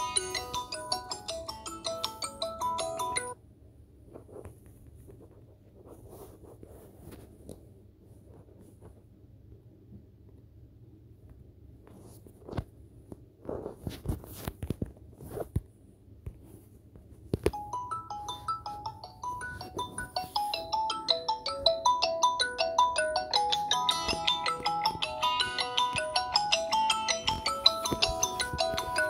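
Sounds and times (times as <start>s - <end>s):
phone ringtone melody: 0.0s - 3.4s, 17.5s - 29.0s.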